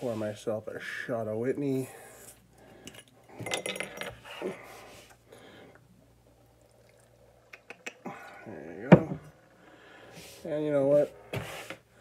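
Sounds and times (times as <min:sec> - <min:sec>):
glass clinking: 0:02.9 - 0:04.2.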